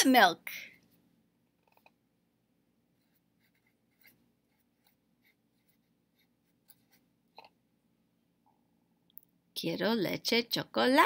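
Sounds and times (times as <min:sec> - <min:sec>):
marker pen writing on paper: 0:03.0 - 0:07.5.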